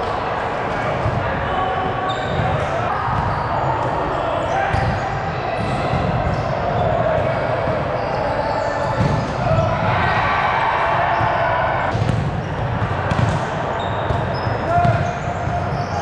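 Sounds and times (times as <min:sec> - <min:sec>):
volleyballs thudding: 0:08.8 - 0:10.0, 0:11.1 - 0:15.7.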